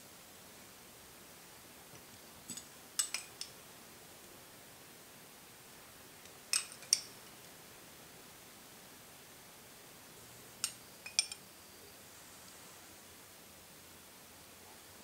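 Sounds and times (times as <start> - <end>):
metal spoon clinking on glass bowl: 2.5 - 3.5, 6.5 - 7.1, 10.6 - 11.4.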